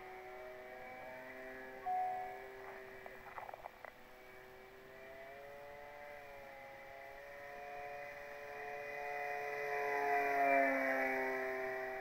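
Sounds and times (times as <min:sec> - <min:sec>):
model plane motor whining: 0:04.7 - 0:12.0.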